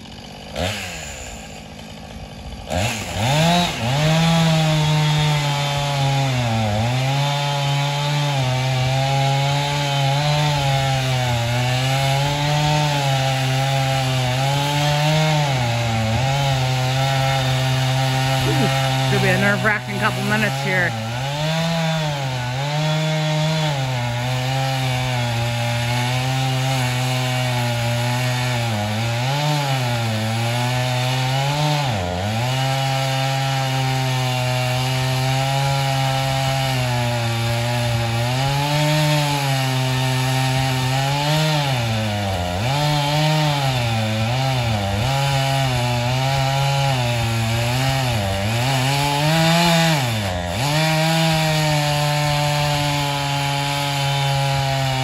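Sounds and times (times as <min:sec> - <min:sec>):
chainsaw cutting tree trunk: 0:00.0 - 0:55.0.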